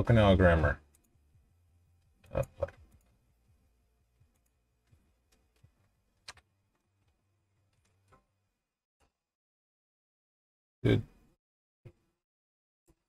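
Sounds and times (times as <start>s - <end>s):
computer mouse clicking: 4.3s - 8.2s.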